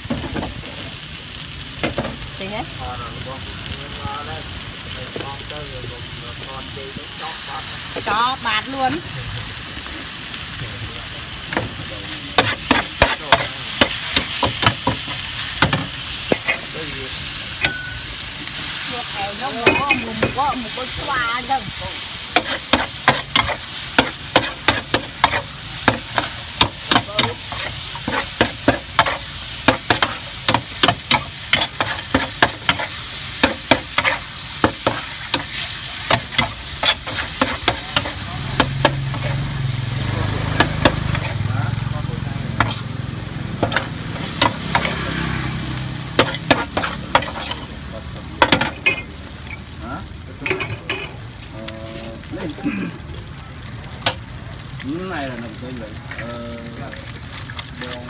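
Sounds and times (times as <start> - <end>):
noodles sizzling on a griddle: 0.0 - 58.0
spatula and tongs scraping iron: 22.4 - 39.4, 42.6 - 42.9, 46.2 - 47.7.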